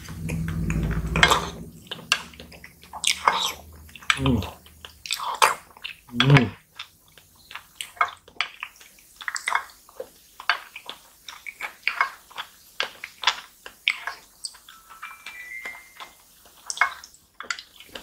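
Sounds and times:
wet slurping and chewing: 0:01.9 - 0:14.3.

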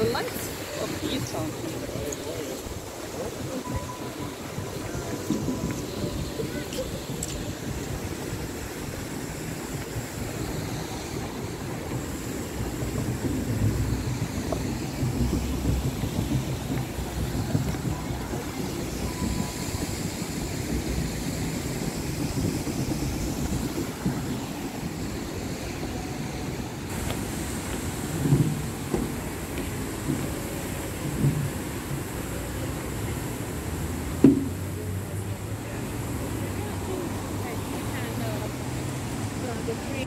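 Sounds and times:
wind buffeting microphone: 0:00.0 - 0:40.0
thump: 0:34.2 - 0:34.6.

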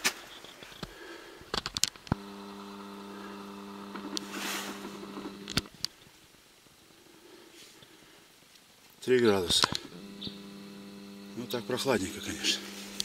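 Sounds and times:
sharp clicks: 0:01.6 - 0:05.9
camcorder zoom motor whirring: 0:02.2 - 0:05.7, 0:09.8 - 0:13.0.

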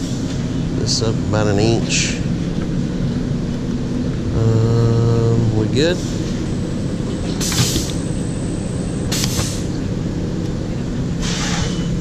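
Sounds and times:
steady machine hum: 0:00.0 - 0:12.0
pneumatic air hissing: 0:07.3 - 0:08.0, 0:09.1 - 0:09.7, 0:11.2 - 0:11.8.

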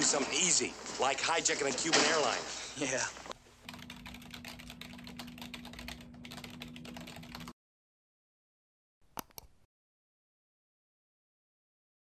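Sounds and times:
rapid keyboard typing: 0:03.6 - 0:07.6
mouse button clicks: 0:09.1 - 0:09.6.

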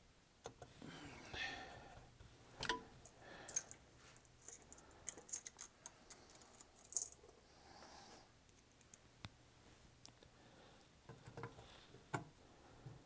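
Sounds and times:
metal screws clicking and clinking: 0:03.5 - 0:03.8, 0:04.4 - 0:07.3.

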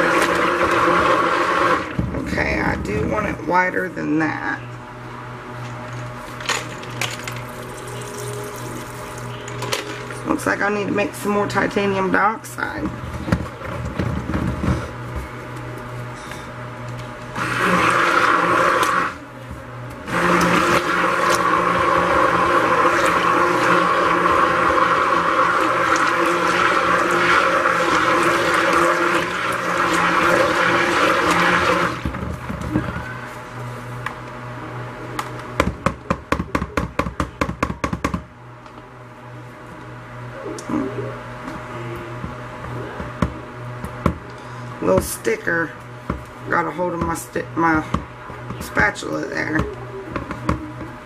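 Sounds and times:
stick blender whirring: 0:00.0 - 0:03.4, 0:16.2 - 0:19.3, 0:19.9 - 0:33.4
low steady hum: 0:00.0 - 0:51.0.

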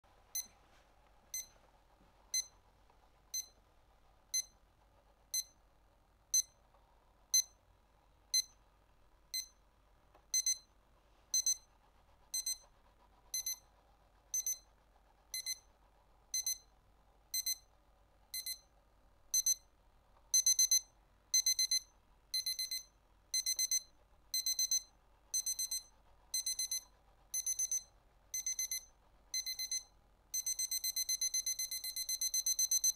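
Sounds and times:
alarm clock beeping: 0:10.4 - 0:10.7, 0:11.4 - 0:11.7, 0:13.4 - 0:13.6, 0:14.4 - 0:14.6, 0:15.4 - 0:15.6, 0:16.4 - 0:16.7, 0:17.4 - 0:17.6, 0:18.4 - 0:18.7, 0:19.4 - 0:19.6, 0:20.4 - 0:32.9.

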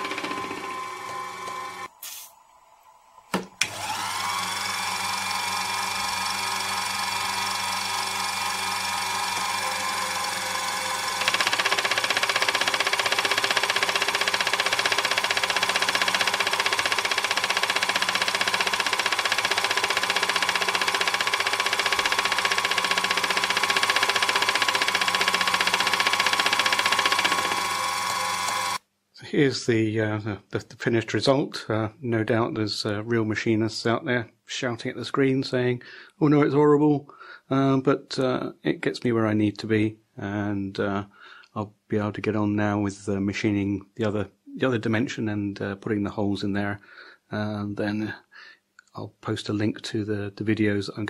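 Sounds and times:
rhythmic metal cutting noise: 0:00.0 - 0:01.9, 0:03.8 - 0:28.8
mini mill motor whine: 0:00.0 - 0:28.8.

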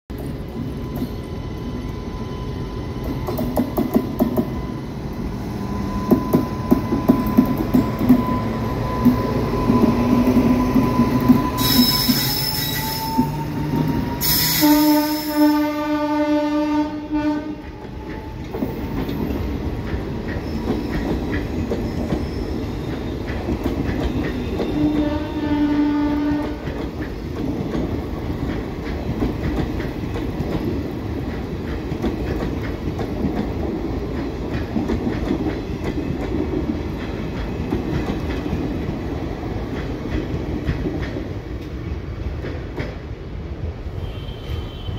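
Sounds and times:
train wheels clattering on rails: 0:02.9 - 0:04.8, 0:06.0 - 0:15.4, 0:17.5 - 0:43.3
high screeches: 0:10.6 - 0:15.4
train horn: 0:11.6 - 0:17.8, 0:24.4 - 0:26.8, 0:44.0 - 0:44.9.

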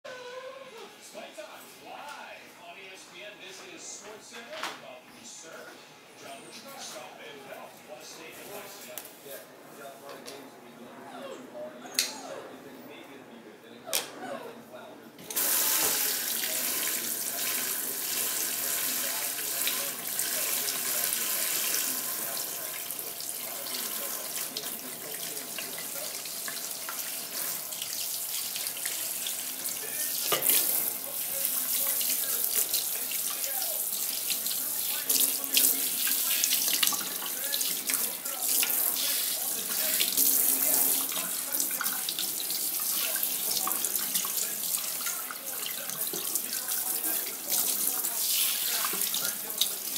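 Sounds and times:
water running into a steel sink: 0:15.3 - 0:49.9.

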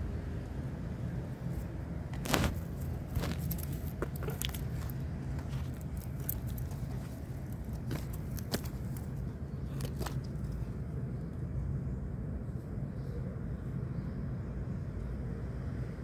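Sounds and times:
low outdoor rumble: 0:00.0 - 0:16.0
light clicks and crackles: 0:02.1 - 0:10.6.

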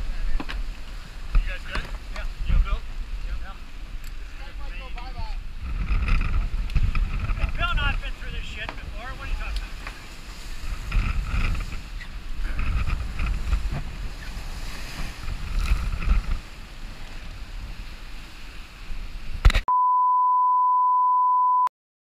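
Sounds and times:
water rushing past hull: 0:00.0 - 0:19.4
wind buffeting microphone: 0:00.0 - 0:19.5
steady test tone beep: 0:19.7 - 0:21.7.

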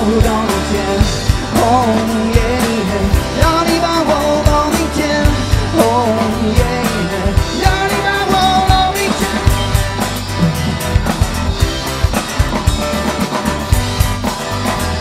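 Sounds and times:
acoustic guitar: 0:00.0 - 0:15.0
drum kit beat: 0:00.0 - 0:15.0
electric bass: 0:00.0 - 0:15.0
gliding melody line: 0:10.2 - 0:12.0.

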